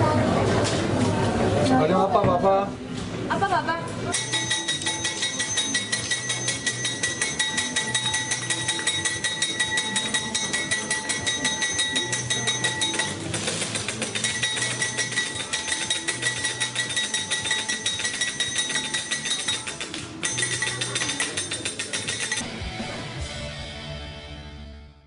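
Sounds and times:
blade chopping candy on steel tray: 0:04.2 - 0:22.4.

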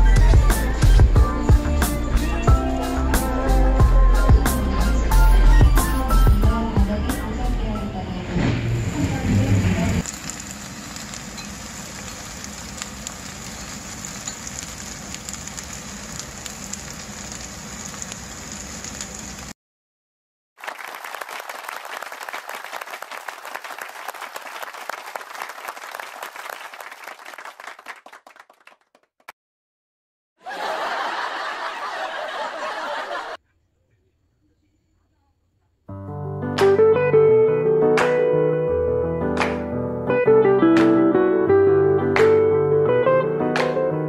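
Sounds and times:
batter sizzling in oil: 0:10.0 - 0:19.6.

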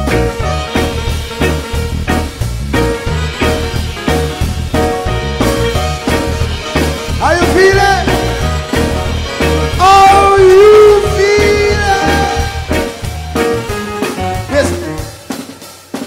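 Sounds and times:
live reggae band: 0:00.0 - 0:16.0
person singing long notes: 0:09.7 - 0:12.7.

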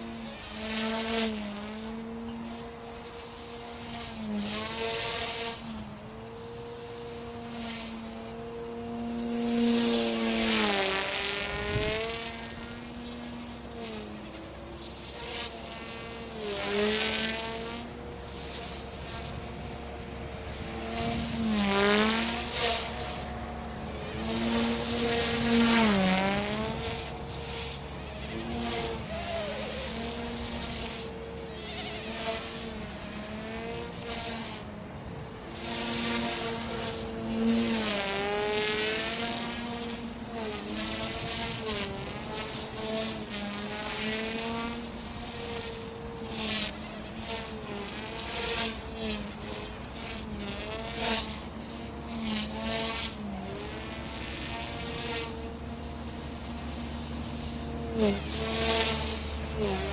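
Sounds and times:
rc helicopter motor whine: 0:00.0 - 0:59.9.

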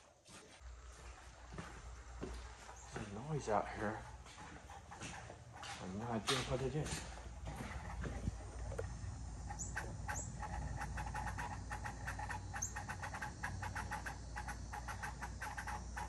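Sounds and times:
fast irregular clicks: 0:08.6 - 0:16.0.

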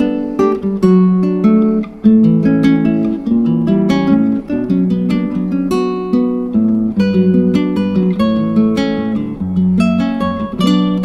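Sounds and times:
acoustic guitar plucking: 0:00.0 - 0:11.0.

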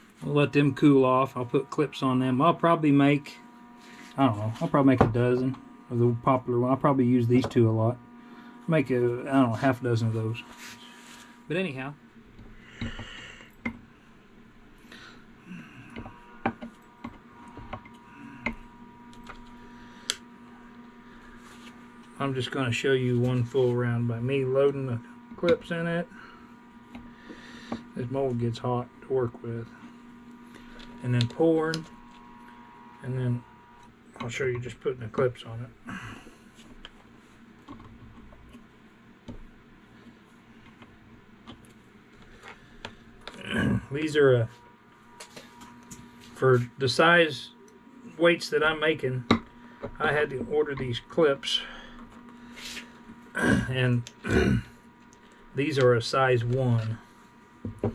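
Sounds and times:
faint steady hum: 0:00.0 - 0:57.9.

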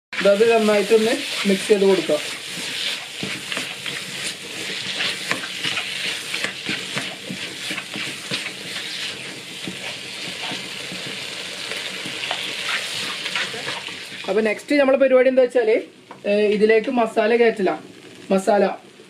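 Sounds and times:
vegetables sizzling in a pan: 0:00.1 - 0:19.0
spatula scraping and tapping pan: 0:01.3 - 0:14.1.

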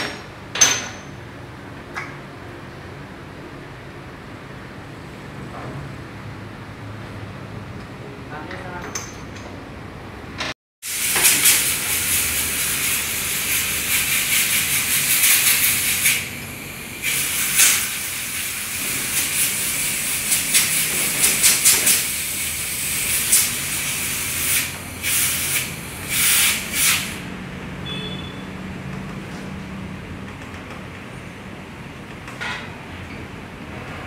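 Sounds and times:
compressed air hissing from blow gun: 0:10.8 - 0:27.2.

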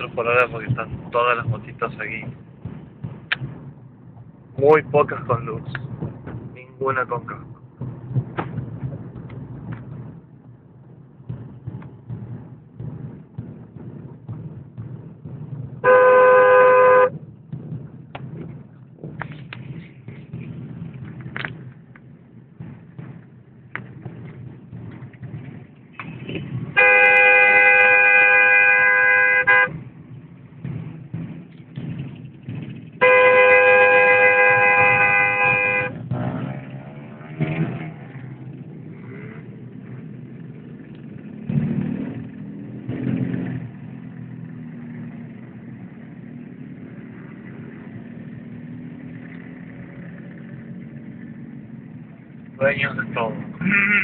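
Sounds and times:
slow traffic hum: 0:00.0 - 0:54.0
car horn blasts: 0:15.8 - 0:17.1, 0:26.3 - 0:29.8, 0:33.0 - 0:36.0.

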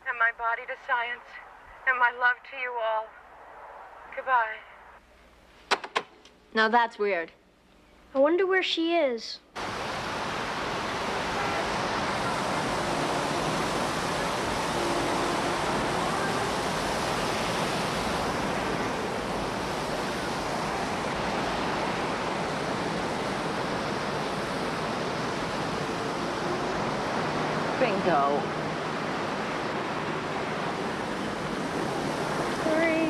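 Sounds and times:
fountain water splashing: 0:09.6 - 0:33.0.

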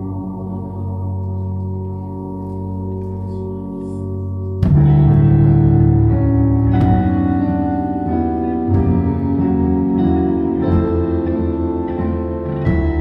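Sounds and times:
keyboard chords: 0:00.0 - 0:13.0
drum hits: 0:04.6 - 0:07.7.

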